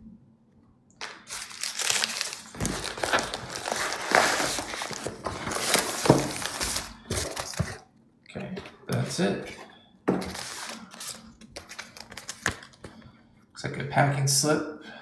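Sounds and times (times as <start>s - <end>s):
packing wrap crinkling: 1.0s - 7.9s, 10.2s - 13.0s
cardboard scraping: 1.5s - 7.8s, 9.6s - 11.8s.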